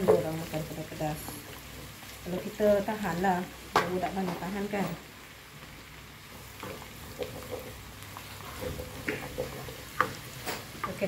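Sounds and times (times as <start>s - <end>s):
garlic sizzling in butter: 0.0s - 11.0s
wooden spatula scraping a pan: 6.4s - 11.0s.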